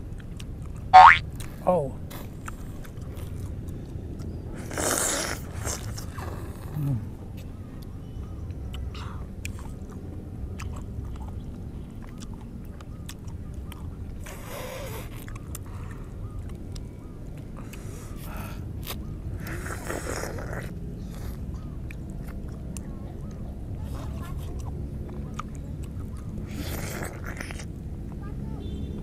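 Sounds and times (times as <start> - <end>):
chewing and sucking orange: 0.0 - 28.2
loud slurps: 4.6 - 6.8.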